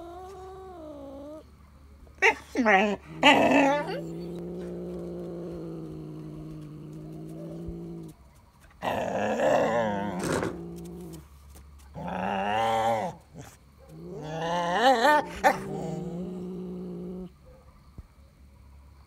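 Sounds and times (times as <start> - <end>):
cat growling: 2.8 - 8.2, 8.8 - 11.3, 12.0 - 17.3.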